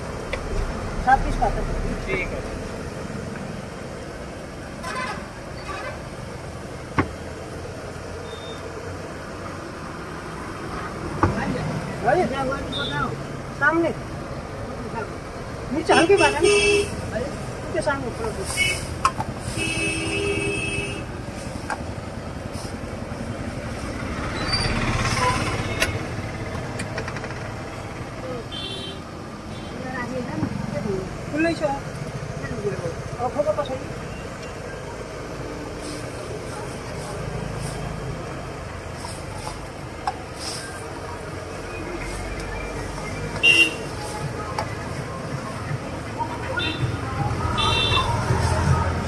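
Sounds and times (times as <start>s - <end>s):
gas burner rumble: 0.0s - 12.3s
road traffic: 0.0s - 49.0s
vehicle horn: 19.5s - 21.1s, 43.4s - 43.9s, 47.6s - 48.2s.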